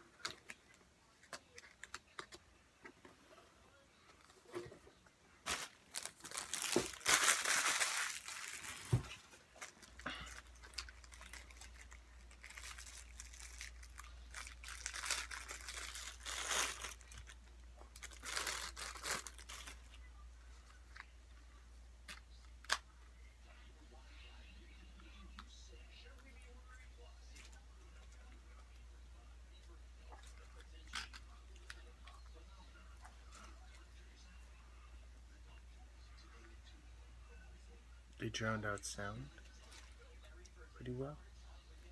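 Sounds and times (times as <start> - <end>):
paper packaging crinkling: 5.4 - 19.9.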